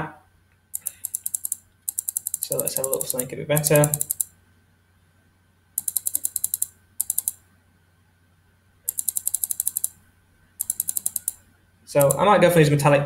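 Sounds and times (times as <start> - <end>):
mouse scroll wheel clicking: 0.7 - 4.3, 5.8 - 7.4, 8.9 - 10.0, 10.6 - 11.4, 12.0 - 12.2.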